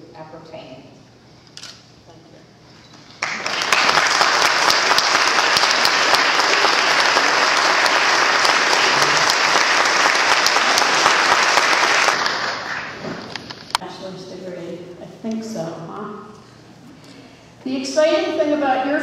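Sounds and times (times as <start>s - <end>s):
audience applauding: 3.2s - 13.3s.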